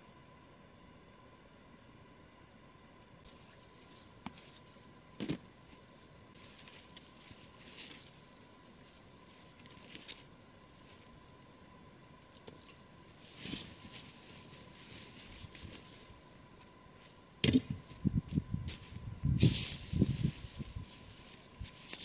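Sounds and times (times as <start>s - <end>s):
footsteps crunching dry leaves: 6.4s - 11.1s, 13.2s - 16.3s, 17.7s - 22.0s.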